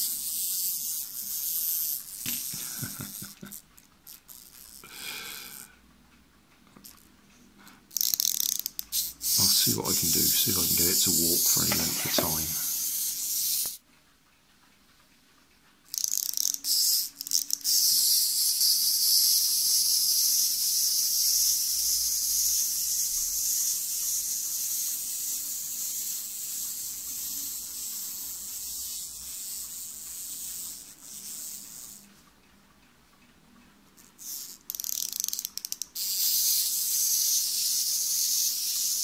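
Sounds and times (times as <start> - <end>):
clockwork motor whirring: 7.9 - 13.8, 15.9 - 32.0, 34.2 - 39.0.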